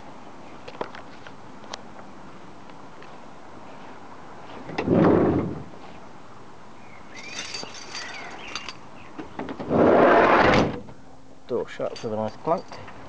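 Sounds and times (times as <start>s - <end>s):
sliding door rolling shut: 4.7s - 5.7s, 9.4s - 10.9s.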